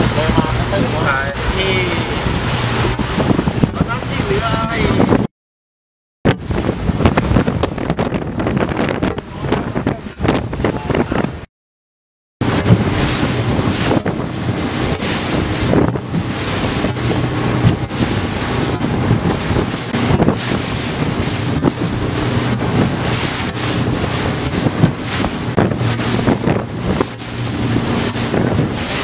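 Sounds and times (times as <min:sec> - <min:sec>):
boat motor running: 0:00.0 - 0:05.3, 0:12.4 - 0:29.0
water slapping against hull: 0:00.0 - 0:05.3, 0:06.3 - 0:11.5, 0:12.4 - 0:29.0
wind buffeting microphone: 0:00.0 - 0:05.3, 0:06.3 - 0:11.5, 0:12.4 - 0:29.0.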